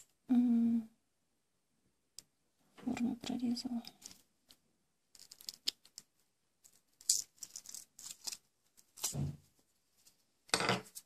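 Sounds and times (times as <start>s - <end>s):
paper crinkling and clicking: 5.2s - 9.2s.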